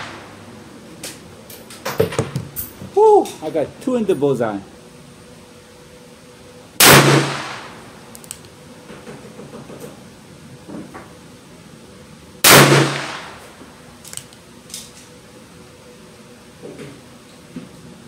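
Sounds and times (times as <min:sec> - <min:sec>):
revolver shots with echo: 0:06.8 - 0:07.8, 0:12.5 - 0:13.4.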